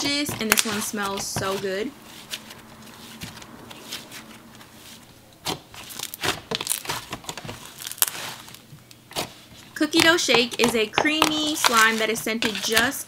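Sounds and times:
slime crackling and popping: 0.3 - 0.8, 5.4 - 12.0.

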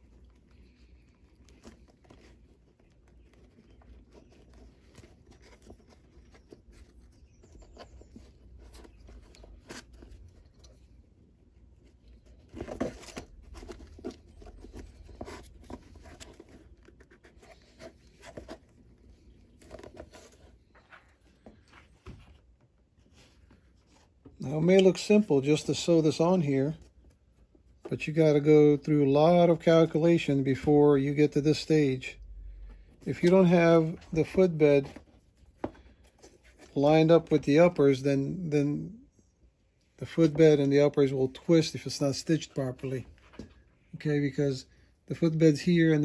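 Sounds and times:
needle and thread through leather: 0.0 - 24.8.

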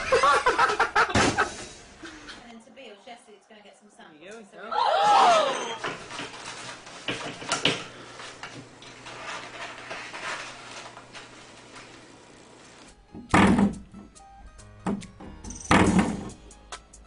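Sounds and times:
toilet paper holder rattling: 5.8 - 8.0.

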